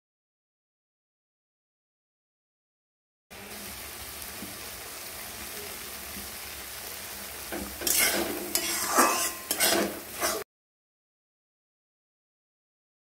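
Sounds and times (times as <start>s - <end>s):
eggs sizzling in a wok: 3.3s - 10.5s
spatula scraping pan: 7.5s - 10.5s.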